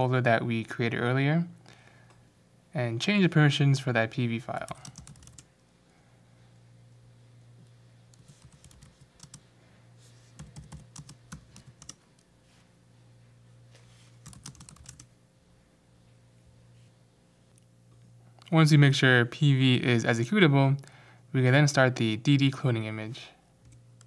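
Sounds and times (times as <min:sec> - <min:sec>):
low steady hum: 0:00.0 - 0:24.0
typing on computer keyboard: 0:04.7 - 0:05.5, 0:08.2 - 0:09.4, 0:10.4 - 0:12.0, 0:14.2 - 0:15.1.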